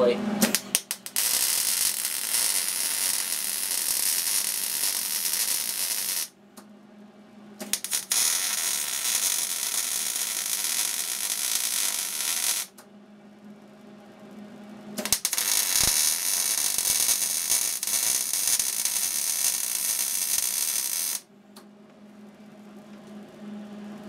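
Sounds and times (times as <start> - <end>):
welding arc strikes: 0.4 - 6.3, 7.6 - 12.7, 15.0 - 21.2
electric arc welding hiss: 0.5 - 6.3, 7.7 - 12.7, 15.0 - 21.2.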